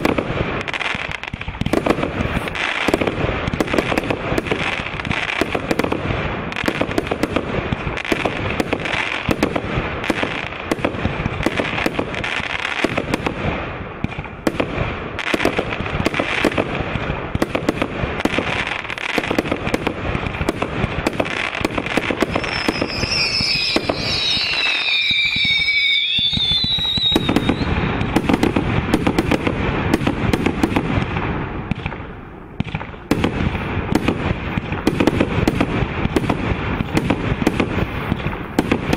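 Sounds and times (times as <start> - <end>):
fireworks whistles gliding downward: 0.0 - 7.3, 17.3 - 31.2
fireworks launches and bursts: 0.0 - 38.9.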